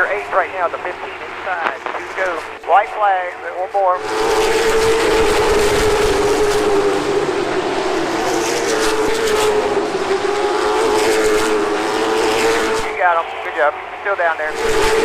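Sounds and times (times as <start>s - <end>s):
race car engine running loud: 4.0s - 15.0s.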